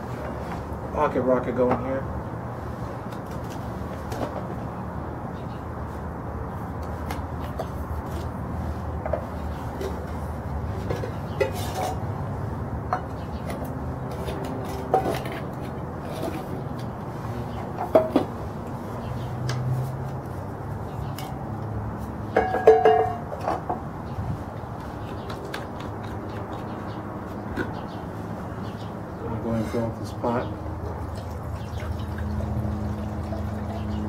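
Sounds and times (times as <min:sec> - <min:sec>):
metal cookware clinking: 0:22.4 - 0:23.2
ringing metal clank: 0:22.4 - 0:23.2.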